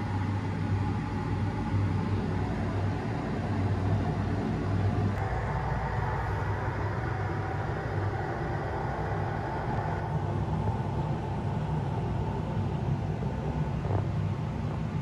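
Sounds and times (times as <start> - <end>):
faint high whine: 0.0 - 15.0
mechanical hum and air noise: 0.0 - 15.0.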